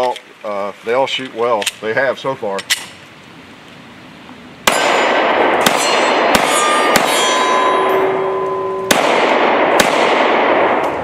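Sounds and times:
pistol shots: 4.6s - 8.2s, 8.8s - 11.0s
steel targets clanging: 5.6s - 9.0s.

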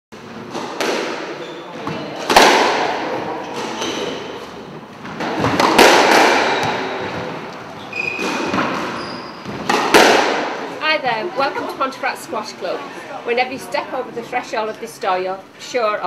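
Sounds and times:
squash ball smacking walls: 0.3s - 4.3s, 5.0s - 7.5s, 8.1s - 10.7s
shoe squeaks: 1.4s - 2.0s, 3.4s - 4.7s, 6.5s - 9.7s.

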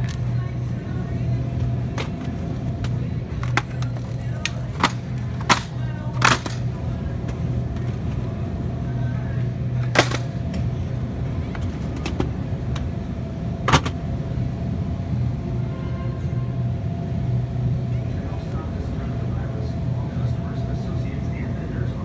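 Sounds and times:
cart basket rattling: 1.9s - 8.4s
shopping cart rolling: 2.0s - 8.5s.

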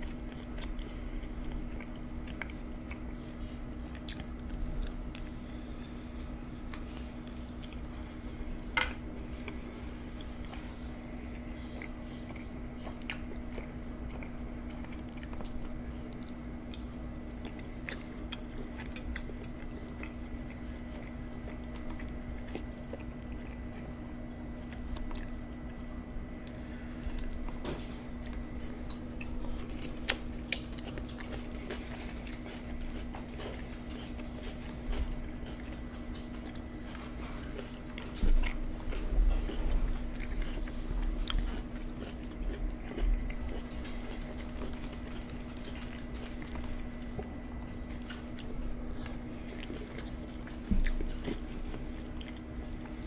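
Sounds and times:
chewing and biting: 0.0s - 53.0s
steady low hum: 0.0s - 53.0s.

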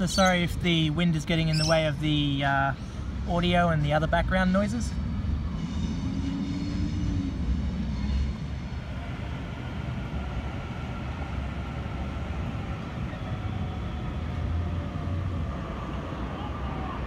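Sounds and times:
distant electric train running: 0.0s - 17.0s
faint whine: 4.8s - 17.0s.

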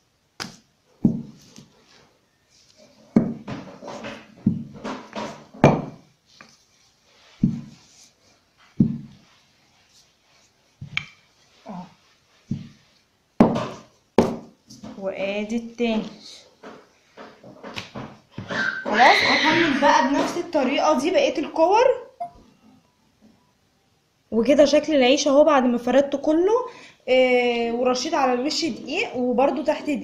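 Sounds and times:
rolling pin thumping on table: 0.4s - 1.4s, 3.2s - 6.0s, 7.4s - 7.8s, 8.8s - 9.2s, 12.5s - 12.8s, 13.4s - 15.0s.

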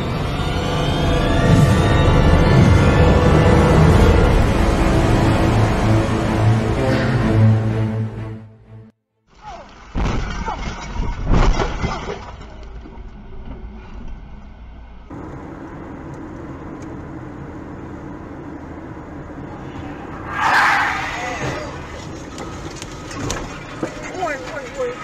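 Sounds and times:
car road and engine noise: 0.0s - 8.4s, 12.2s - 25.0s.

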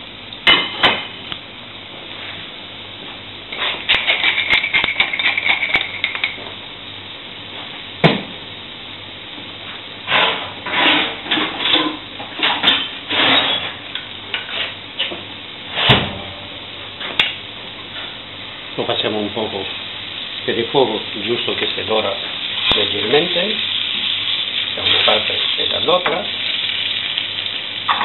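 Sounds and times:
heavy thump: 15.8s - 16.2s
chicken sizzling in frying pan: 17.4s - 28.0s.

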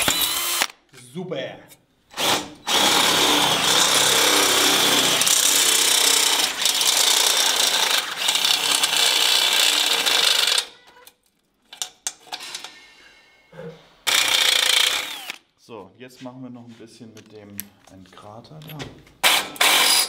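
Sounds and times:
electric drill boring metal: 0.0s - 0.7s, 2.2s - 10.7s, 14.1s - 15.4s, 19.4s - 20.0s.

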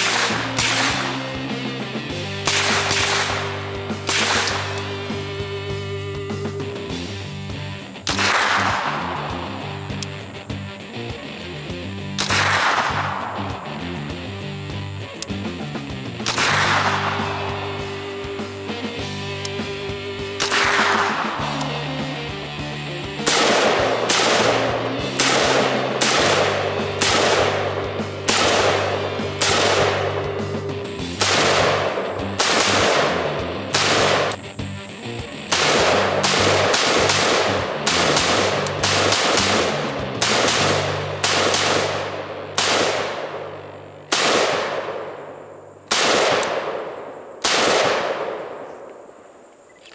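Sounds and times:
pistol shots with ringing echo: 0.0s - 1.5s, 2.3s - 5.2s, 8.0s - 9.4s, 12.2s - 13.5s, 16.2s - 17.8s, 20.4s - 21.8s, 23.2s - 34.4s, 35.5s - 49.4s.

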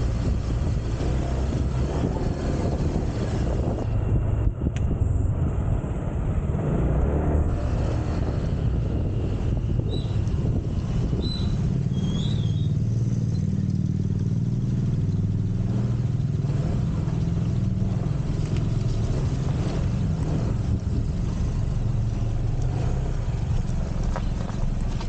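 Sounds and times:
small motorcycle engine running: 7.6s - 24.2s.

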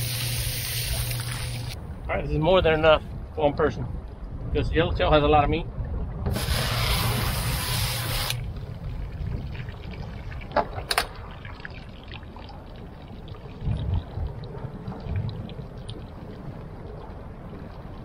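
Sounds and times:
water hissing from hose: 0.0s - 1.8s, 6.3s - 8.4s
low rumble: 0.5s - 18.0s.

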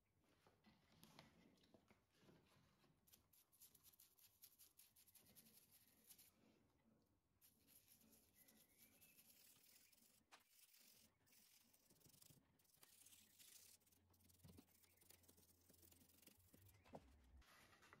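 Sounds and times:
toothbrush scrubbing wood: 7.4s - 16.8s.

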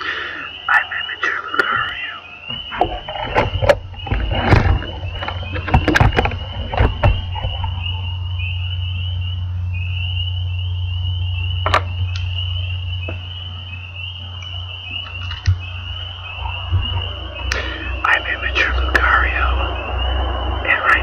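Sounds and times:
frogs trilling: 0.0s - 21.0s
steady low hum: 0.0s - 21.0s.

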